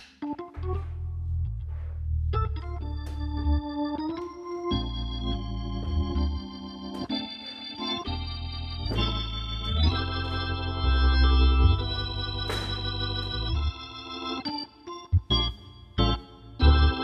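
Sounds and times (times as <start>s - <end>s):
low organ bass line: 0.2s - 17.0s
organ sustained chords: 0.2s - 17.0s.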